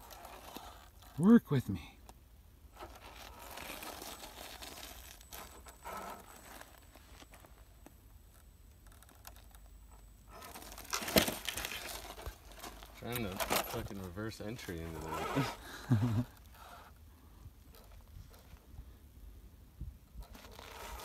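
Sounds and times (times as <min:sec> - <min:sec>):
tyres crunching over dirt and rock: 0:00.0 - 0:01.2, 0:02.7 - 0:16.8.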